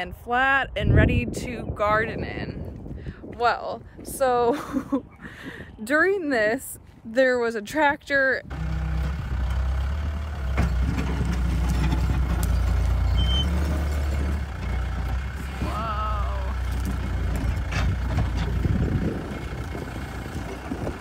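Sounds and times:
diesel engine droning under load: 8.4s - 21.0s.

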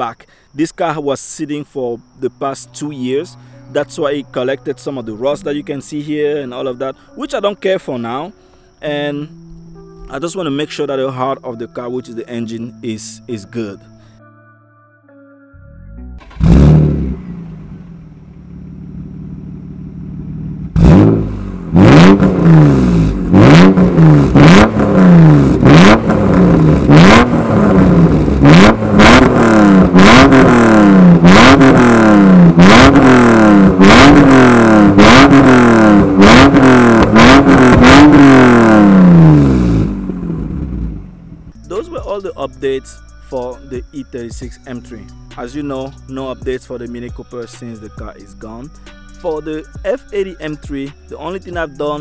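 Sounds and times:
car engine revving: 16.2s - 41.7s
car engine idling: 16.2s - 43.6s.

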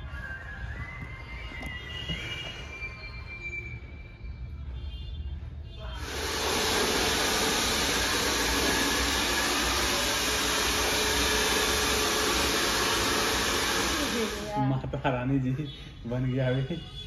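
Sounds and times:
hair dryer blowing: 6.0s - 14.6s.

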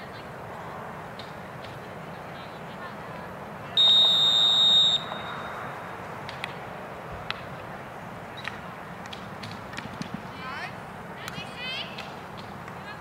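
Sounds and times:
whistle blast: 3.8s - 5.8s.

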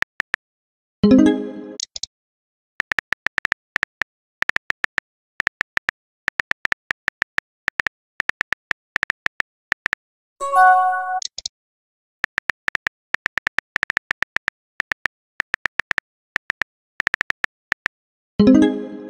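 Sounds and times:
message sent chime: 10.4s - 11.3s
phone keyboard clicks: 12.2s - 17.9s.

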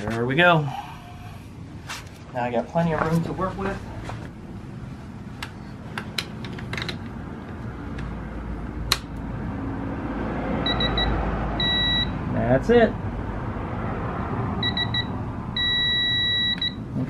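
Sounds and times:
torque wrench beeps: 10.7s - 12.2s, 14.6s - 16.8s.

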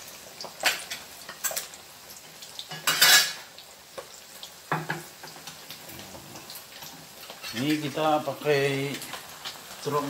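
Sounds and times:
pot bubbling: 0.0s - 10.0s
utensil scraping metal pot: 5.9s - 8.0s.

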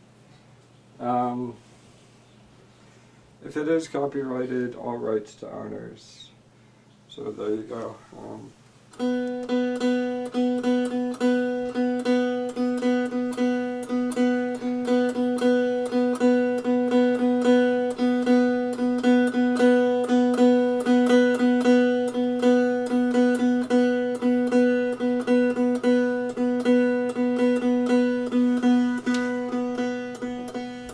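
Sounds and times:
plucked string: 9.0s - 30.9s.

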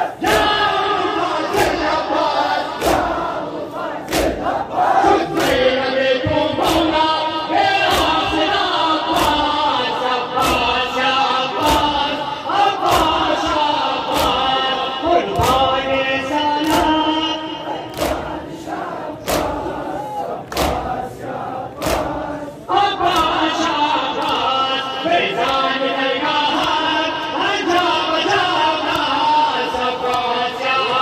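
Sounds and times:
crowd of men chanting: 0.0s - 31.0s
chest-beating slaps: 2.6s - 3.3s, 4.0s - 4.6s, 5.3s - 5.7s, 6.6s - 7.0s, 7.8s - 12.2s, 12.8s - 15.8s, 16.6s - 21.0s, 21.7s - 22.4s, 24.2s - 24.5s.

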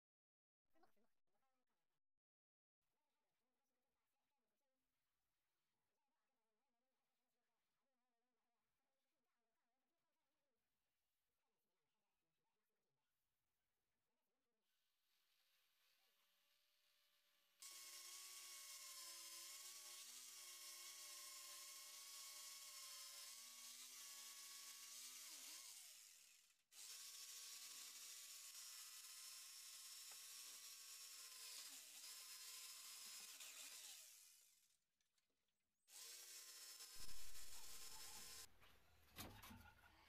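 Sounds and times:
jigsaw cutting wood: 17.6s - 34.8s, 35.9s - 38.5s.

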